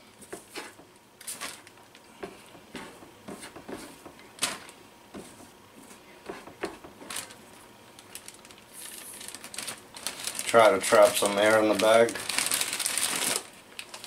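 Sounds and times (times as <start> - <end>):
plastic bag rustling and crinkling: 0.0 - 14.0.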